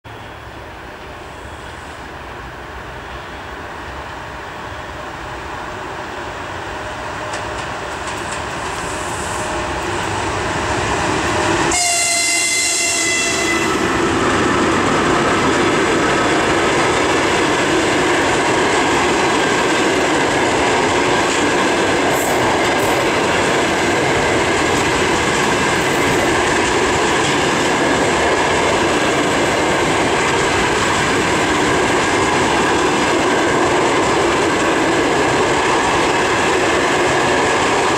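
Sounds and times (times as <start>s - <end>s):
electric locomotive approaching: 0.1s - 37.9s
train wheels clattering on rails: 7.0s - 37.9s
train horn: 11.6s - 13.9s.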